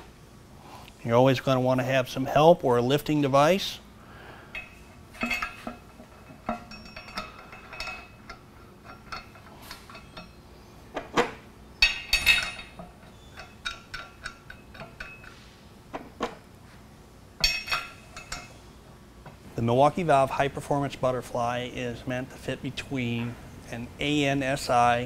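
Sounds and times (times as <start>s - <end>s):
metal clinks and knocks: 4.5s - 10.4s, 11.0s - 16.4s, 17.4s - 18.6s.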